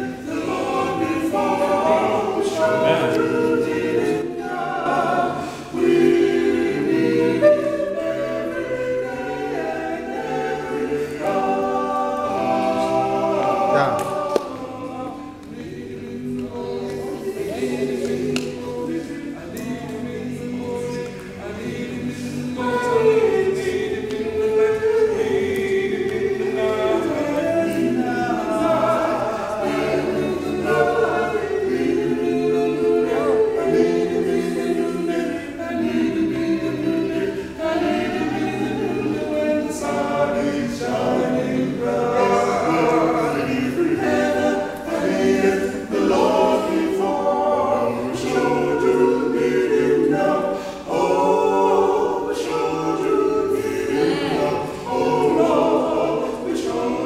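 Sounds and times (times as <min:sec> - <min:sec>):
male vocal quartet singing a hymn: 0:00.0 - 0:57.0.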